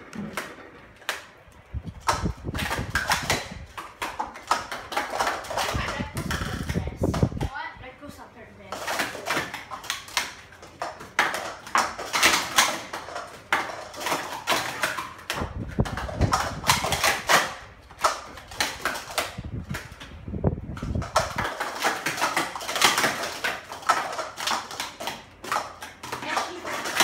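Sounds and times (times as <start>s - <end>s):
plastic cups clacking: 0.0s - 7.6s, 8.7s - 27.0s.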